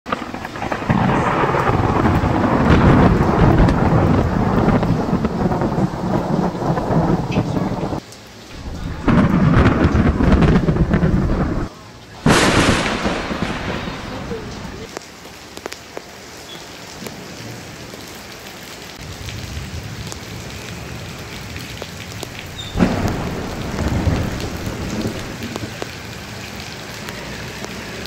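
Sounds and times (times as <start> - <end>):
heavy rain: 0.0 - 28.0
deep thunder rumble: 0.1 - 8.0, 8.6 - 14.9, 19.0 - 26.0
sharp thunderclap: 0.1 - 8.0, 8.6 - 14.9, 21.6 - 25.9.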